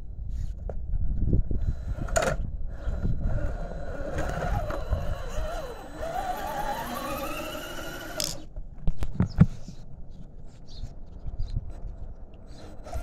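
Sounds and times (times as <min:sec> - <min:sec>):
electric motor whine: 0:02.7 - 0:08.5.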